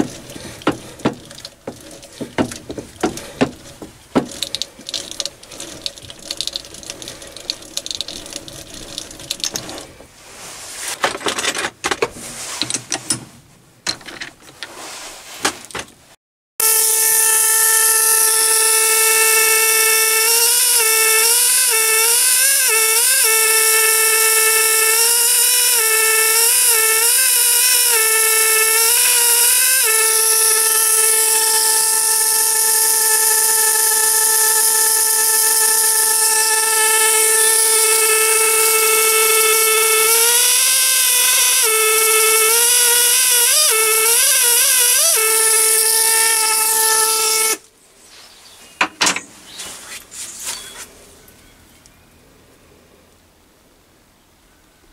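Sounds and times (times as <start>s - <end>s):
engraving tool whining: 0.0s - 9.8s, 16.6s - 47.6s.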